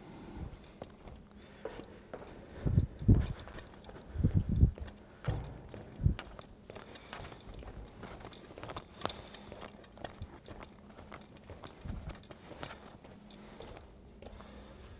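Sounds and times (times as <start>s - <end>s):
faint steady hum: 0.0s - 14.9s
footsteps on floor tiles: 0.5s - 14.9s.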